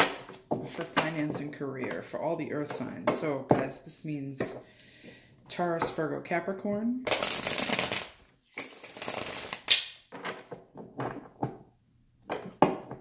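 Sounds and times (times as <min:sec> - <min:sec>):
cards riffle-shuffled: 0:07.1 - 0:10.0.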